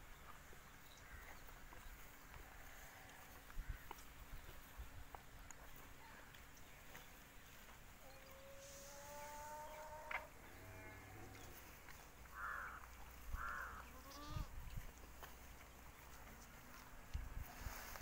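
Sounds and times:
animal long rising call: 8.3s - 11.3s.

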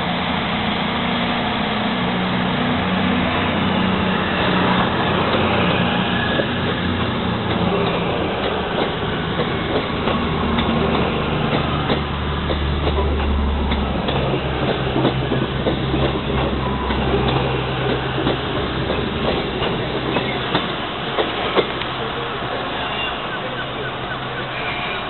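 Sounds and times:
diesel train engines droning: 0.0s - 25.0s
wheels clicking over rail joints: 6.6s - 22.0s.

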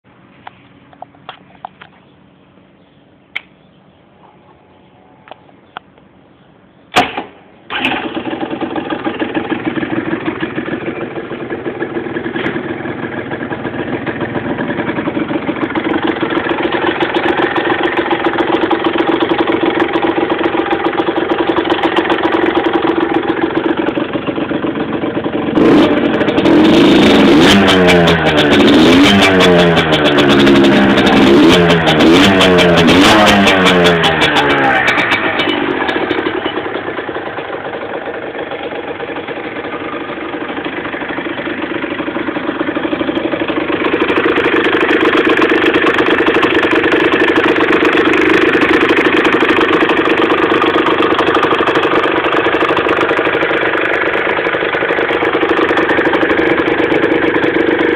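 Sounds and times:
motorbike engine idling: 0.1s - 57.9s
motorbike throttle revving: 7.7s - 57.9s.

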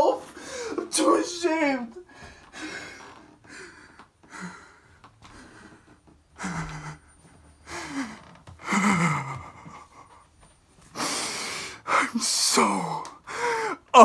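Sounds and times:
man gasping and breathing hard: 2.4s - 10.2s, 10.9s - 12.2s, 13.2s - 13.9s
man whimpering groans: 7.8s - 9.9s.

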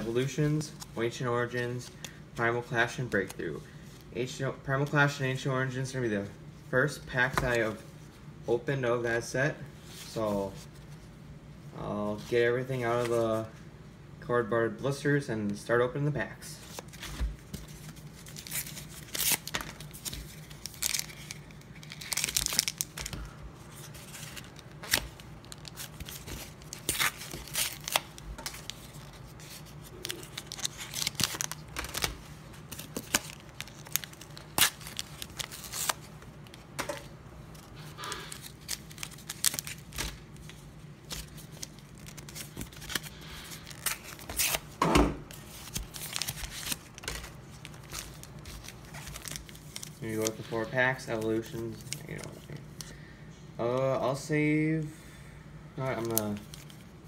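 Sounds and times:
packaging tearing and crinkling: 17.8s - 36.6s, 38.0s - 40.5s, 41.1s - 44.6s, 45.3s - 50.4s.

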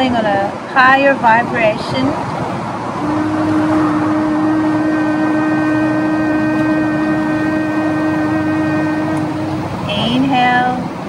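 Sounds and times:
steady rushing noise: 0.0s - 11.0s
woman humming a long note: 3.0s - 10.8s.

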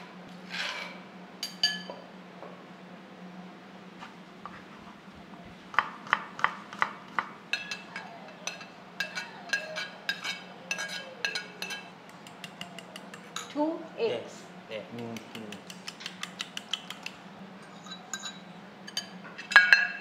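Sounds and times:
spoon clinking on ceramic plate: 1.4s - 2.0s, 7.5s - 13.6s, 17.8s - 20.0s.

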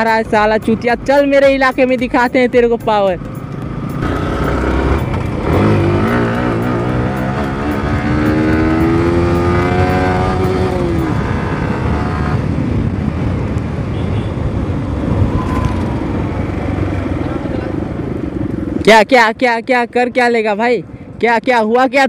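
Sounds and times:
motorcycle engine accelerating: 3.2s - 13.8s.

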